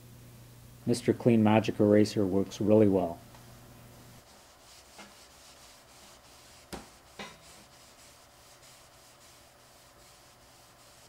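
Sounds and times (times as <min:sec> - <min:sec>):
eraser rubbing on plastic: 0:04.2 - 0:11.0.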